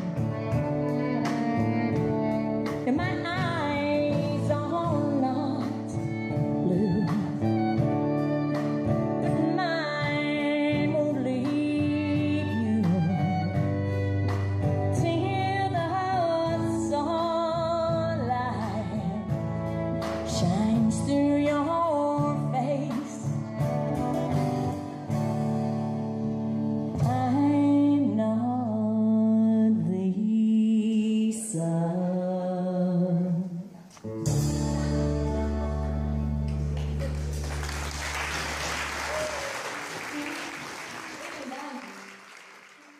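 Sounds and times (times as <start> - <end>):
live country band playing: 0.0 - 29.9, 33.8 - 40.8
woman singing: 2.6 - 7.8, 9.2 - 13.8, 14.7 - 23.6, 26.9 - 33.8.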